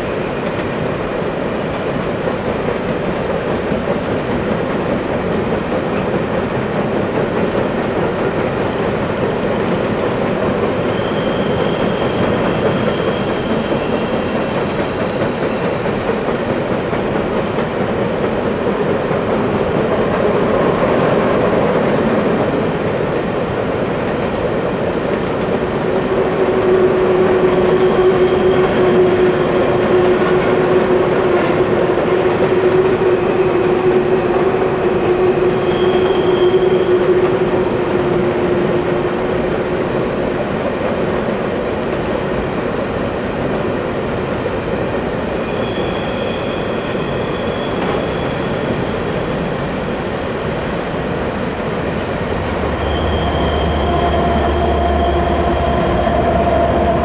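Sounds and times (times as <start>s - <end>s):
train wheels rumbling on rails: 0.0s - 57.0s
high wheel squeal: 9.9s - 16.2s, 25.9s - 39.5s, 45.3s - 49.6s, 52.2s - 57.0s.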